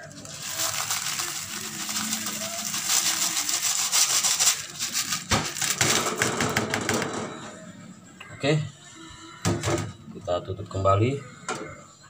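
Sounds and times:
beans pouring into water: 0.0s - 5.6s.

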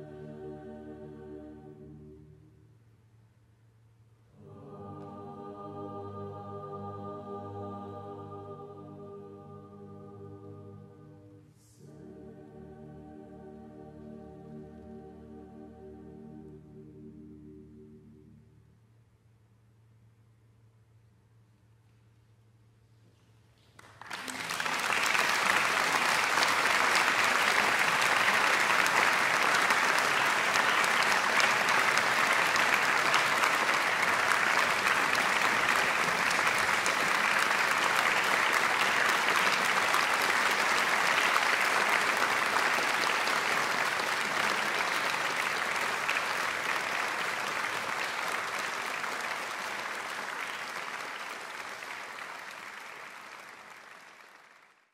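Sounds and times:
audience applause: 23.8s - 54.9s.

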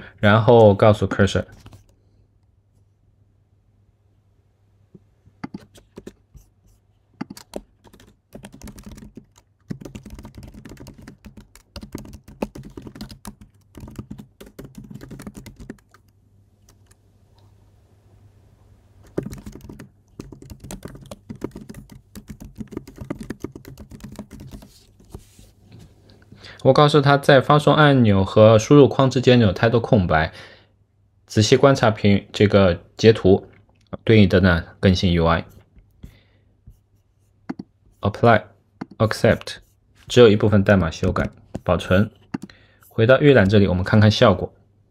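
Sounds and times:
keyboard typing: 5.4s - 6.5s, 7.2s - 17.0s, 19.0s - 25.2s, 37.5s - 37.7s, 41.0s - 42.5s.

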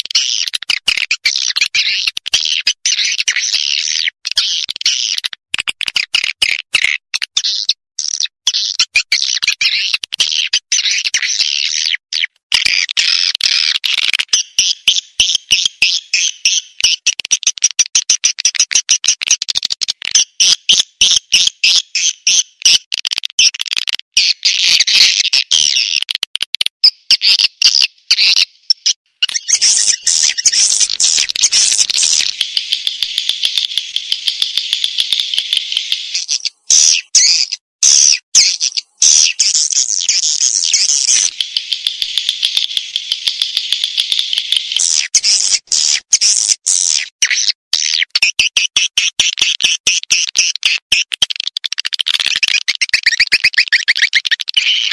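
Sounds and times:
swiftlets twittering: 29.3s - 37.6s, 38.4s - 46.0s.

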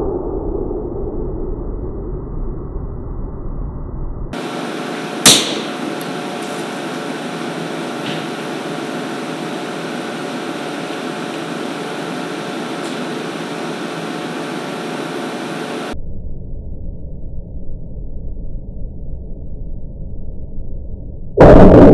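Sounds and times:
stud welding gun crack: 4.4s - 15.3s
steady machine hum: 4.4s - 16.0s, 21.4s - 21.9s.

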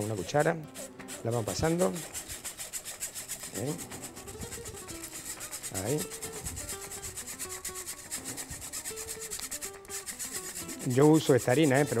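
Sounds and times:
spoon scraping wire-mesh sieve: 0.0s - 12.0s.

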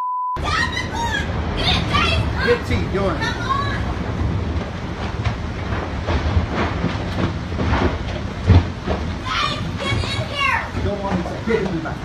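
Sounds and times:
strong storm wind rushing: 0.4s - 12.0s.

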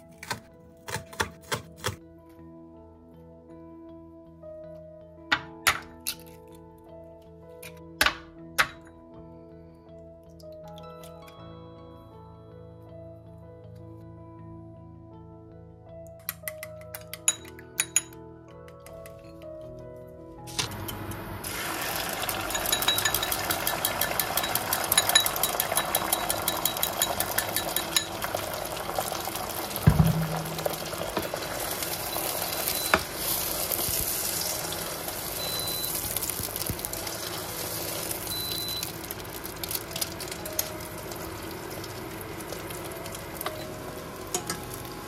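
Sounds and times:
egg sizzling in oil: 20.7s - 45.0s
dull thump: 29.9s - 31.2s.

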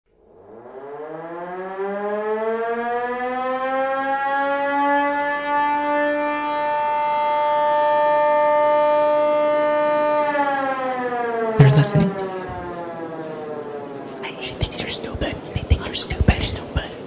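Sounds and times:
siren wailing: 0.2s - 14.2s.

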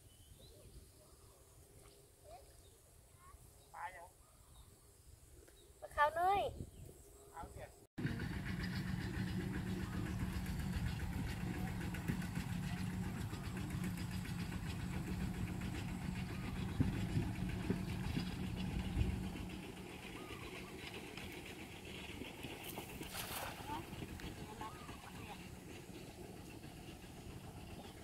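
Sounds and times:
engine knocks: 8.0s - 28.0s
small engine running: 8.0s - 28.0s.

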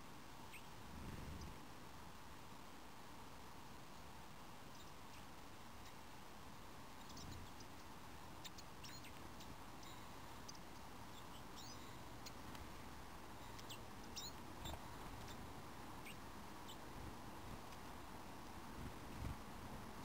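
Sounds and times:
songbird call notes: 0.4s - 0.8s, 6.9s - 12.4s, 13.4s - 15.4s, 16.0s - 16.9s.

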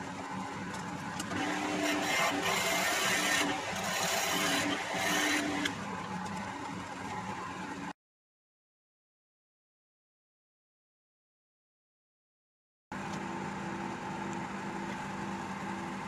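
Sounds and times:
lathe motor humming: 0.6s - 6.4s.

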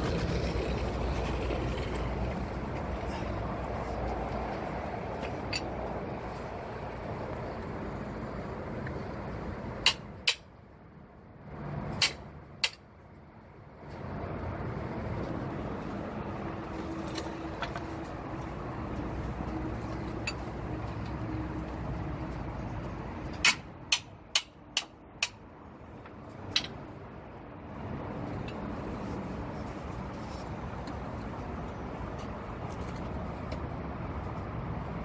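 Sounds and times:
vehicle noise with low hum: 0.0s - 35.0s
sharp metallic wrench clicks: 9.8s - 10.5s, 12.0s - 12.8s.

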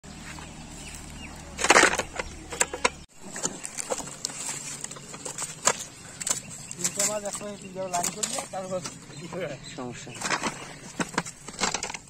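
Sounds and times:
dry leaves crackling: 0.1s - 9.3s.

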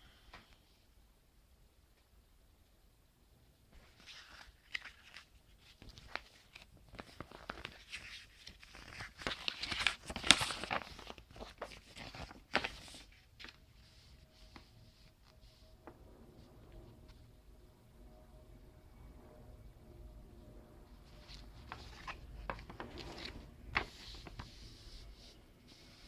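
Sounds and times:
paper rustling and crinkling: 3.7s - 15.7s, 21.0s - 26.0s.

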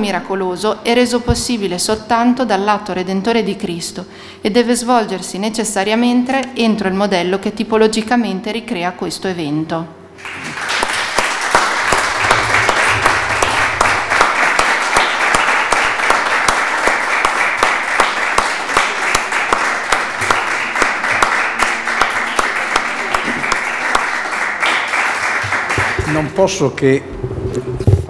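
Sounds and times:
audience applauding: 10.2s - 26.4s.

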